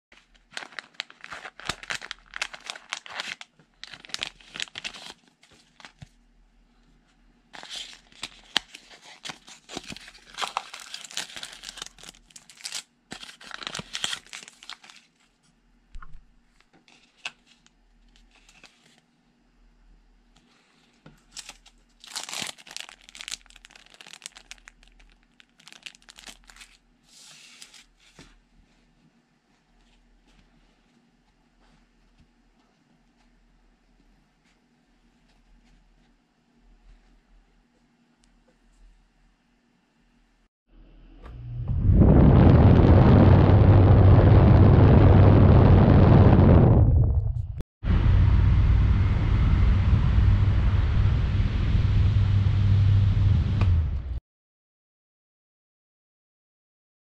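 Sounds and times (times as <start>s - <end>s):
plastic bags crinkling and tearing: 0.2s - 6.0s, 7.6s - 15.2s, 21.2s - 26.8s.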